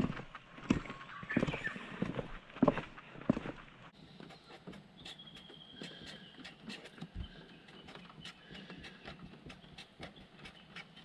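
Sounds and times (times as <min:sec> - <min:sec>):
pen tapping and scratching on wood: 0:04.3 - 0:11.0.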